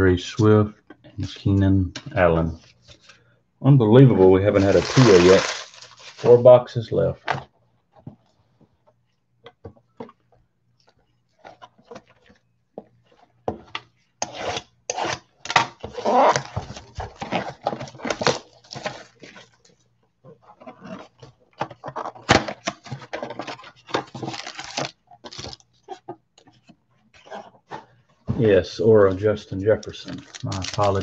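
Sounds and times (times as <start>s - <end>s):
plastic wrap crinkling and tearing: 4.5s - 6.6s, 15.9s - 19.6s, 24.0s - 26.0s, 29.7s - 31.0s.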